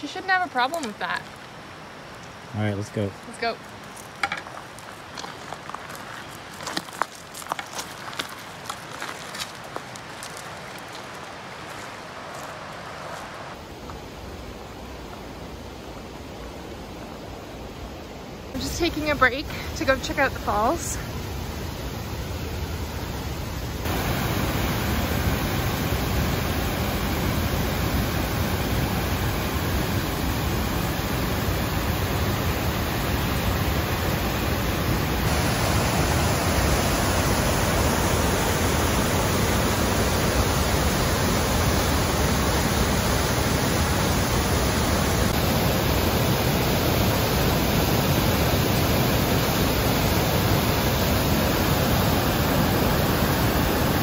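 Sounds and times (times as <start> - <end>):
waterfall rushing: 18.5 - 54.0.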